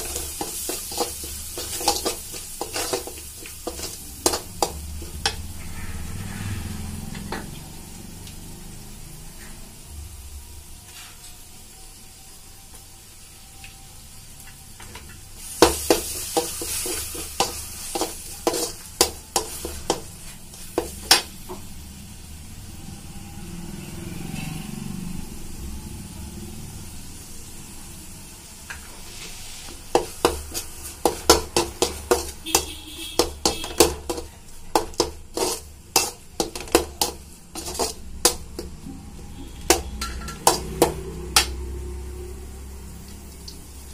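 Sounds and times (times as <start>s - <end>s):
metal spatula scraping a pan: 0.0s - 7.0s, 15.4s - 21.3s, 29.0s - 41.6s
vegetables sizzling in oil: 0.0s - 43.9s.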